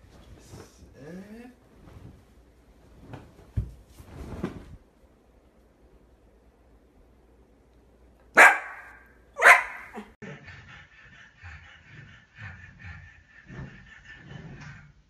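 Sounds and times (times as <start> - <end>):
dog barking loudly: 8.4 - 10.1.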